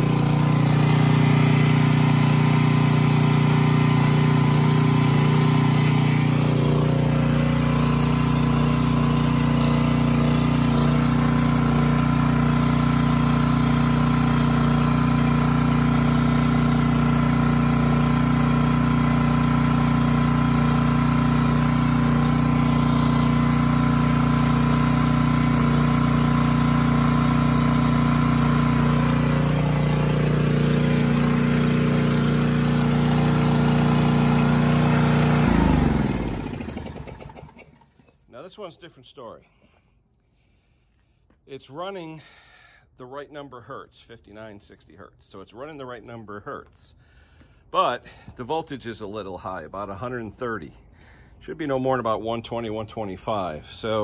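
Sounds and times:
generator engine running: 0.0s - 38.3s.

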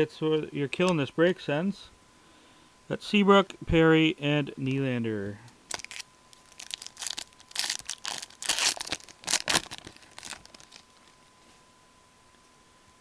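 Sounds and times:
foil wrapper tearing and crinkling: 5.7s - 11.2s.

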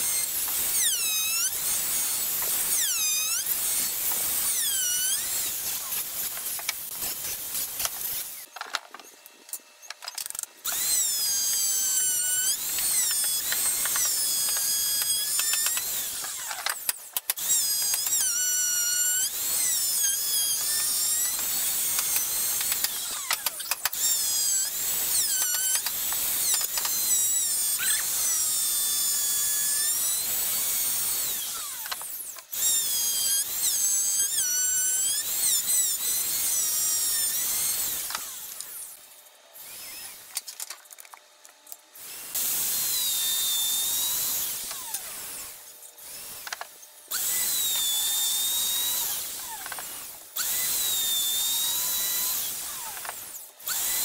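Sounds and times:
electric router whining: 7.8s - 29.9s.

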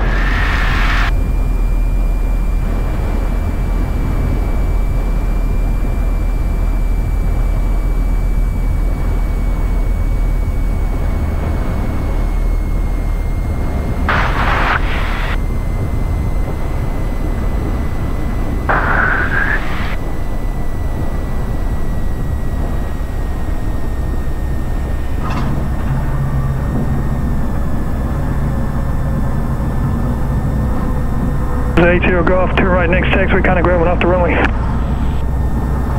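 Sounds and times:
aircraft engine near idle: 0.0s - 35.9s
airframe rumbling: 0.0s - 35.9s
low hum: 0.0s - 35.9s
hissy noise bursts: 14.1s - 15.4s, 18.7s - 20.0s.

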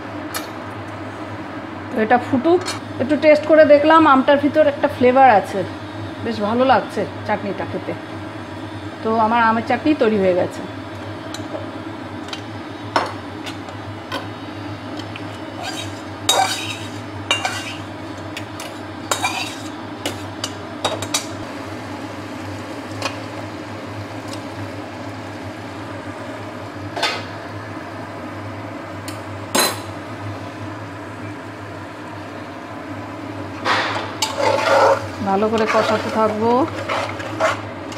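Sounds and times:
metal spatula scraping a pan: 15.6s - 17.9s, 18.6s - 20.2s, 34.2s - 37.6s.

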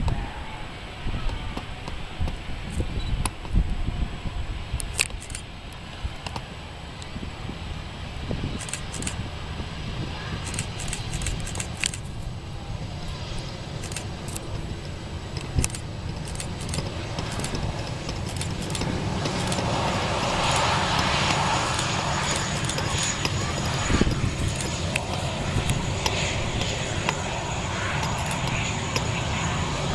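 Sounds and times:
jet engines rumbling: 0.0s - 29.9s
sharp clicks and crackle: 4.8s - 6.4s, 8.6s - 9.2s, 10.4s - 12.1s, 13.8s - 14.6s, 15.4s - 19.7s, 20.4s - 23.4s, 24.0s - 27.2s, 28.0s - 29.0s.

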